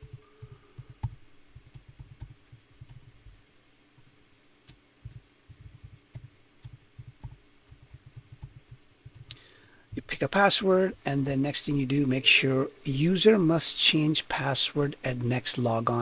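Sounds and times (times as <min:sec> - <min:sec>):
faint keyboard typing: 0:00.0 - 0:03.4, 0:04.6 - 0:10.1.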